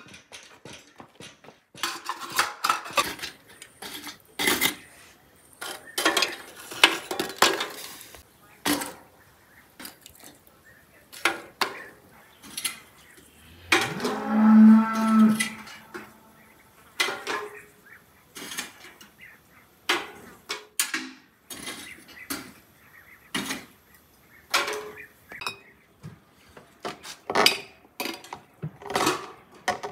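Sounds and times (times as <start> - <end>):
cow mooing: 13.2 - 16.5.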